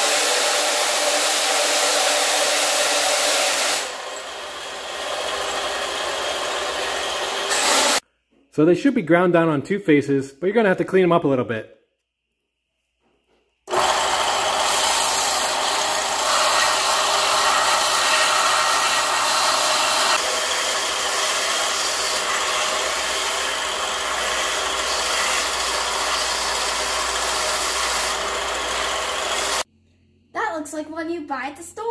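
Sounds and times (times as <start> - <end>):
belt sander grinding pencils: 0.0 - 8.0, 13.7 - 29.7.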